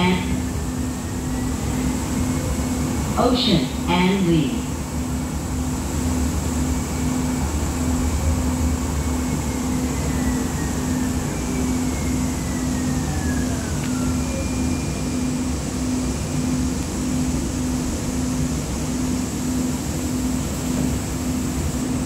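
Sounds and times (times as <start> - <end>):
low rumble of rail car: 0.0 - 22.0
steady high tone: 6.9 - 18.3.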